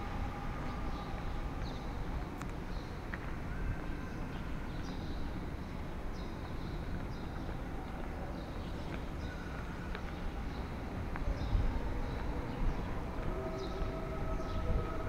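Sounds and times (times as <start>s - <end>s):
wind buffeting microphone: 9.8s - 15.0s.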